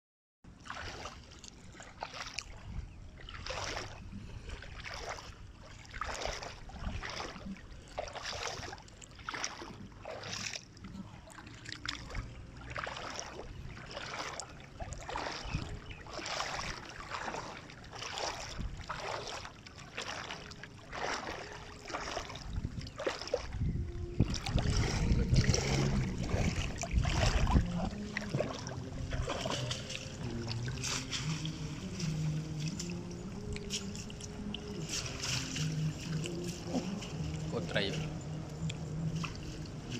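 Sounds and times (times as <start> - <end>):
water splashing and sloshing: 0.5 - 39.9.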